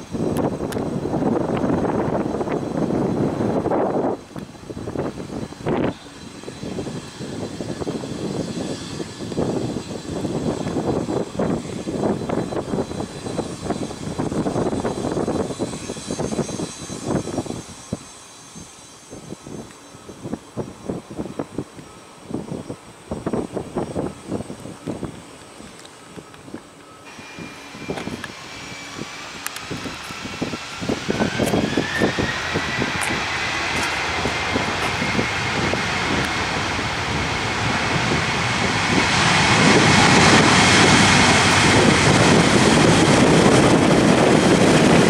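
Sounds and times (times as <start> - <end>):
high steady jet whine: 0.0 - 45.0
jet engines roaring: 0.0 - 45.0.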